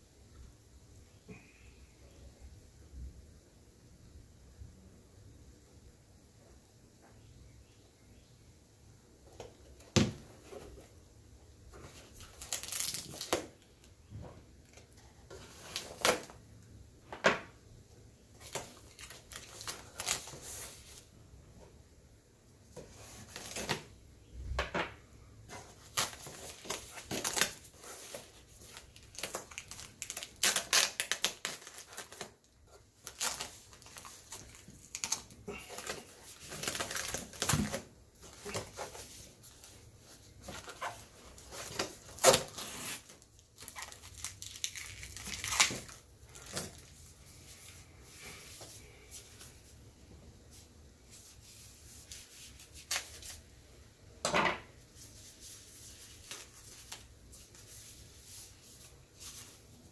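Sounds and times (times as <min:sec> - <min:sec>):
packing wrap crinkling: 0:11.9 - 0:13.7, 0:25.6 - 0:47.2.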